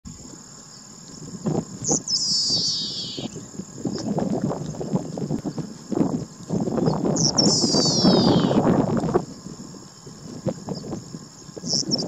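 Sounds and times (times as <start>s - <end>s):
insect trill: 0.1s - 12.0s
pipit song: 2.1s - 3.4s.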